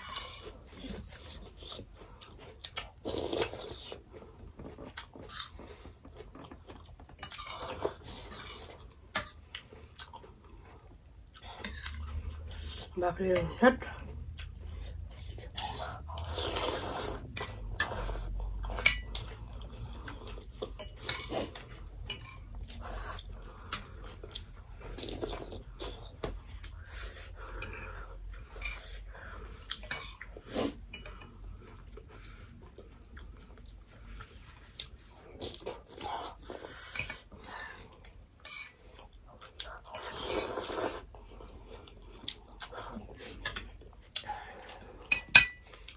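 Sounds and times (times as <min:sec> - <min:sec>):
noodle soup slurping: 0:15.5 - 0:18.3, 0:39.9 - 0:41.1.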